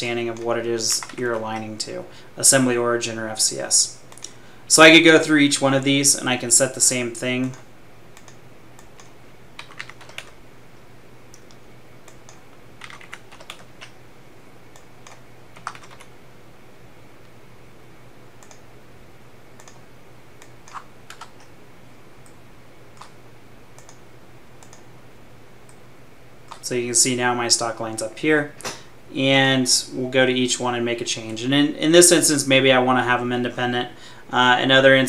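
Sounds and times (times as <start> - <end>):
keyboard typing: 0.0 - 1.8, 8.2 - 10.4, 11.3 - 14.0, 14.7 - 16.1, 19.5 - 19.8, 20.4 - 21.5, 23.8 - 24.0
faint low hum: 0.0 - 35.0
mouse clicks: 8.2 - 10.4, 18.4 - 18.6, 19.6 - 19.8, 23.8 - 24.0, 24.6 - 24.8.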